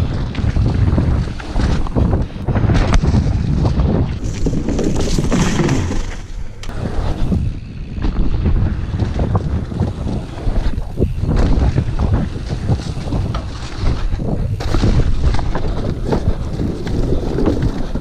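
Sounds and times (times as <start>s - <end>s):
bike knocks and rattles: 0.0s - 18.0s
wind buffeting microphone: 0.0s - 18.0s.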